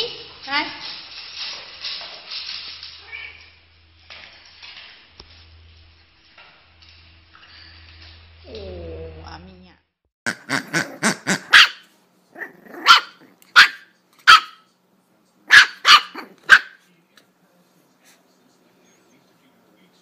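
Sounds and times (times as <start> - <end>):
puppy yapping: 10.5 - 14.7, 15.5 - 16.8.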